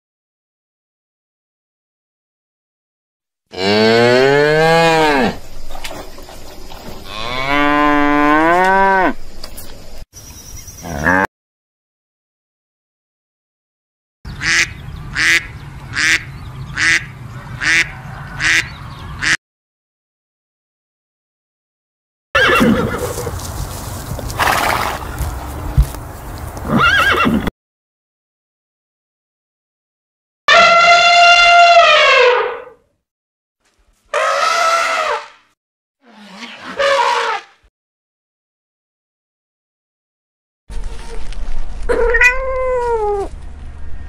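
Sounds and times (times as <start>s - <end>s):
cow mooing: 3.5s - 5.4s, 7.0s - 9.2s
horse whinnying: 22.4s - 23.4s, 24.4s - 25.2s, 26.6s - 27.5s.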